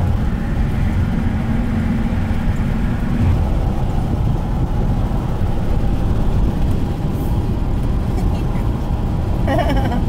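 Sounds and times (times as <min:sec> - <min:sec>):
car road noise rumble: 0:00.0 - 0:10.0
steady hum: 0:01.7 - 0:06.4.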